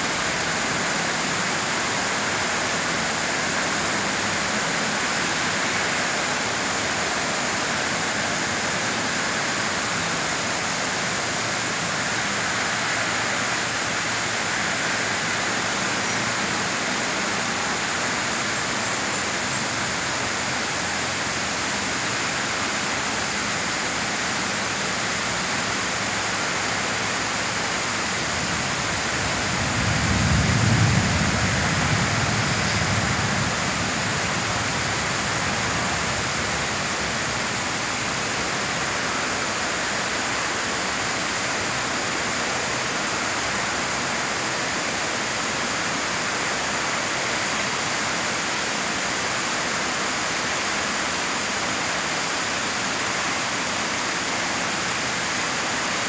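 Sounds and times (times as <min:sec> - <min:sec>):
heavy rain hiss: 0:00.0 - 0:56.0.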